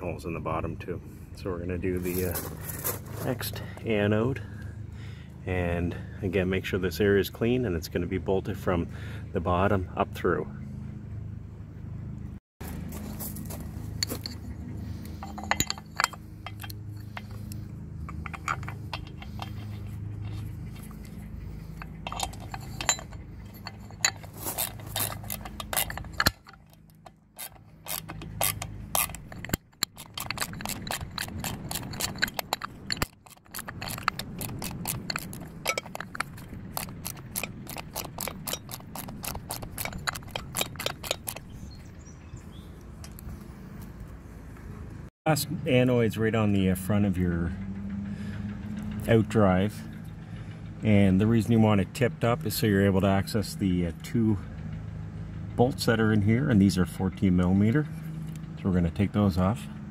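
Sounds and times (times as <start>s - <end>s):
ratchet wrench clicking: 21.8s - 41.5s.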